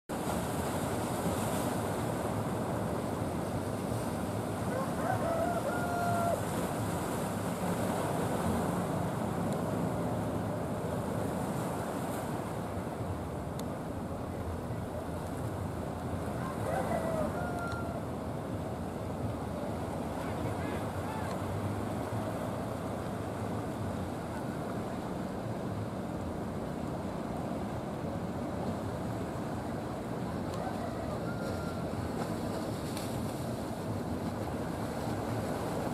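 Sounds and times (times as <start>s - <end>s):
sea rushing: 0.1s - 35.9s
waves washing: 0.1s - 35.9s
boat engines droning: 0.4s - 35.9s
rooster crowing: 4.7s - 6.5s, 16.4s - 18.0s, 30.6s - 32.0s.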